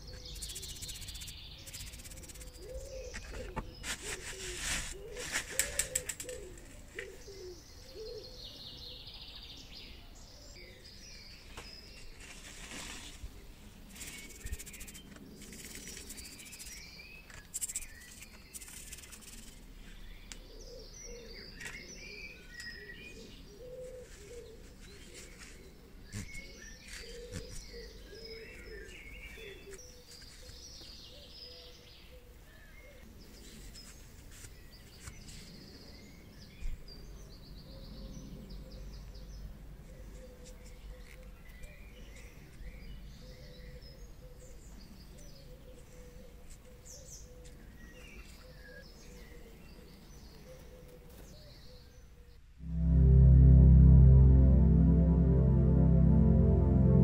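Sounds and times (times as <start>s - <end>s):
birds chirping: 0.0s - 12.2s, 13.8s - 32.1s
paper towel rustling and crinkling: 3.8s - 6.0s.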